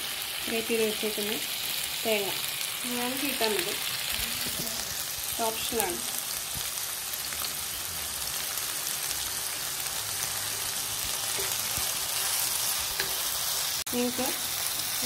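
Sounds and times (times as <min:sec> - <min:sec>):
food sizzling in a pan: 0:00.0 - 0:15.0
wooden spatula stirring: 0:10.2 - 0:13.3.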